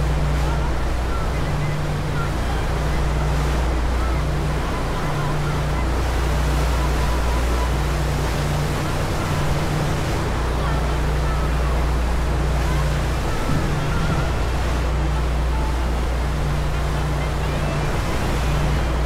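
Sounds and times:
churning wake rushing: 0:00.0 - 0:19.0
ferry engines humming: 0:00.0 - 0:19.0
wind on microphone: 0:12.8 - 0:15.1.

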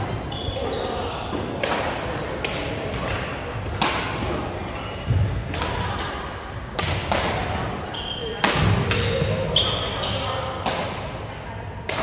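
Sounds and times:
gym hall hubbub: 0:00.0 - 0:12.0
badminton rackets striking shuttlecocks: 0:00.6 - 0:04.8, 0:06.7 - 0:07.8.

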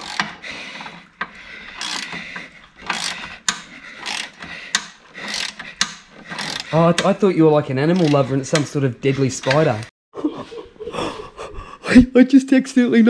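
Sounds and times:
ratchet wrench rasping: 0:00.0 - 0:07.2, 0:07.9 - 0:09.8
sharp metal clicks: 0:00.0 - 0:07.2, 0:07.9 - 0:08.8.

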